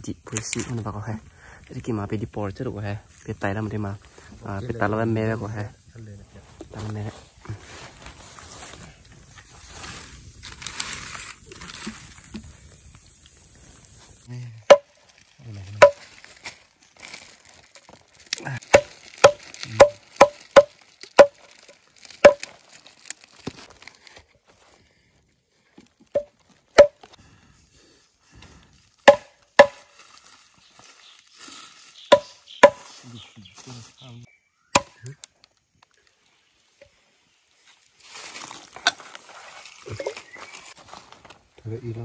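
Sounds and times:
blade chopping meat and bone: 18.7 - 21.4, 29.1 - 29.8, 32.1 - 32.8, 34.8 - 35.0.

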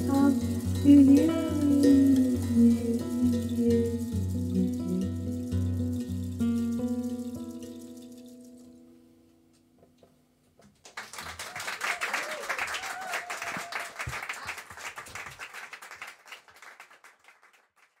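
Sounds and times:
band sustained note: 0.0 - 7.8
audience applause: 10.8 - 18.0.

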